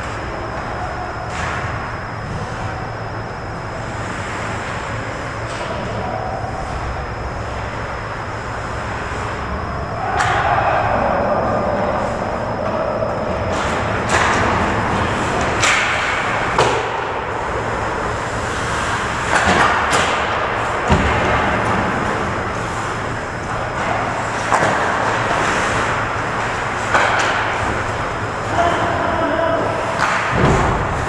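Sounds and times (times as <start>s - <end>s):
sticks and puck clacking: 26.8s - 27.7s, 29.9s - 30.4s.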